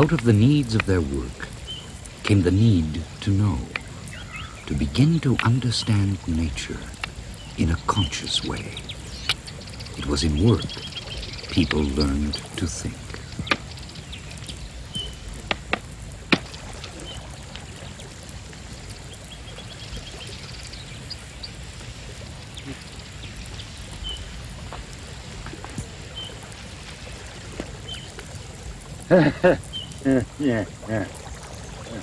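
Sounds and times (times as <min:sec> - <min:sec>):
steady low rumble: 0:00.0 - 0:32.0
high bird-like chirps: 0:06.6 - 0:15.3
sharp clicks: 0:08.6 - 0:10.1.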